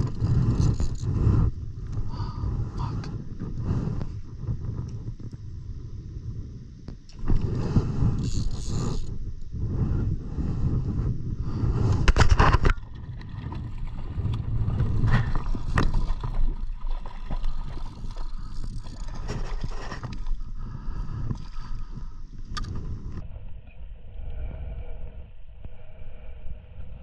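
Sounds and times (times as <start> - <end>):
low wind rumble: 0.0 - 27.0
water lapping at kayak hull: 11.5 - 23.2.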